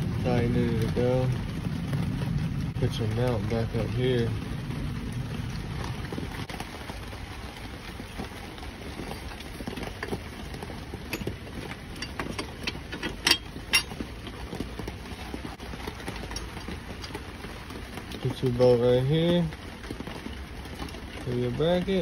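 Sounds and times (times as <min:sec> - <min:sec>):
low steady rumble: 0:00.0 - 0:22.0
metal bracket clicks and clinks: 0:12.0 - 0:14.0.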